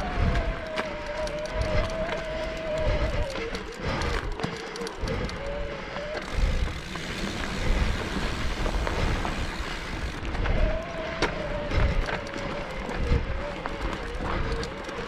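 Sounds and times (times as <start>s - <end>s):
electric bike motor whining: 0.0s - 15.0s
tyres rolling over dirt and rock: 6.1s - 15.0s.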